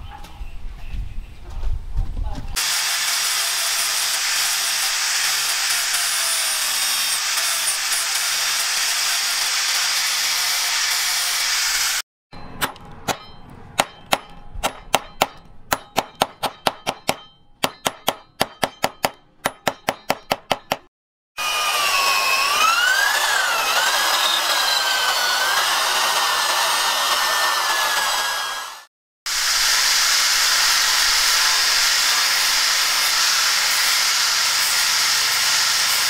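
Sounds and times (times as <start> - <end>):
angle grinder on wood: 2.6 - 12.0, 21.4 - 36.0
hatchet tapping metal: 12.4 - 20.9.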